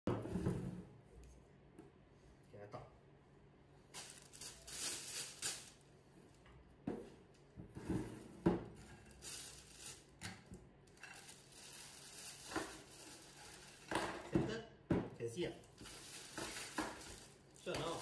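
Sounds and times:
plastic bag rustling: 3.9 - 5.8, 8.8 - 10.2, 10.9 - 14.3, 15.6 - 18.0.

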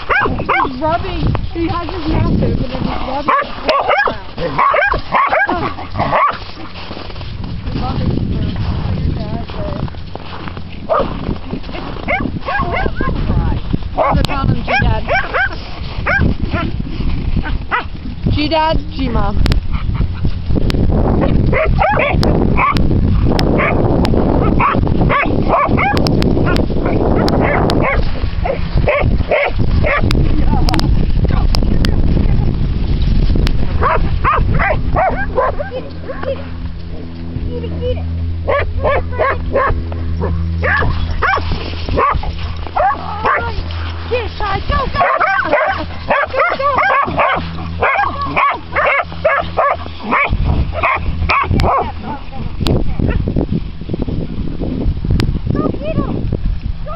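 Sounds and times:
dogs barking and yipping: 0.0 - 7.0, 10.7 - 18.1, 19.6 - 20.5, 21.2 - 23.8, 24.4 - 31.6, 33.7 - 52.3
steady low hum: 0.0 - 56.9
steady low rumble: 0.0 - 56.9.

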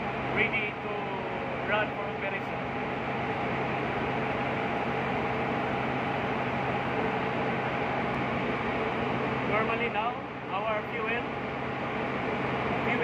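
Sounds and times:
engine room machinery drone: 0.0 - 13.0.

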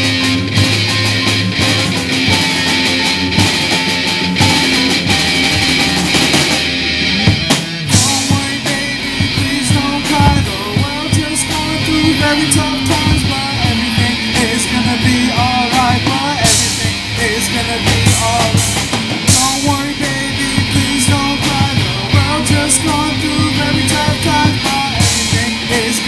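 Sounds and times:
bass guitar: 0.0 - 26.0
drum kit: 0.0 - 26.0
electric guitars: 0.0 - 26.0
person singing: 7.9 - 26.0.

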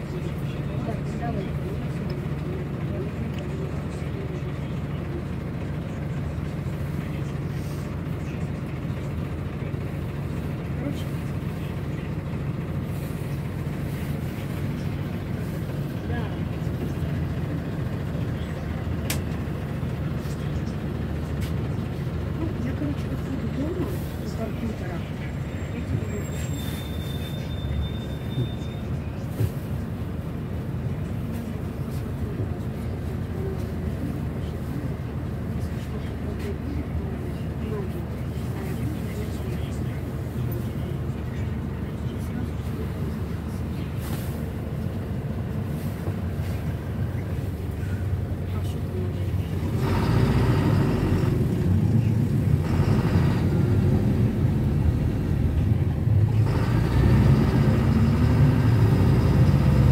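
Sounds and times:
minibus engine rumble: 0.0 - 59.9
road noise: 0.0 - 59.9.

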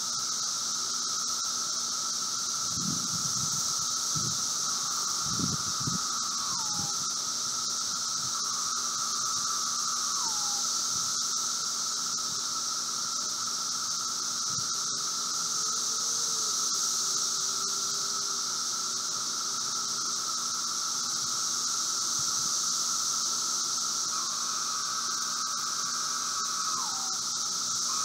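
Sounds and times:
cicada call sliding down: 0.0 - 28.0
cicada chorus drone: 0.0 - 28.0
nearer cicada song: 0.0 - 28.0.

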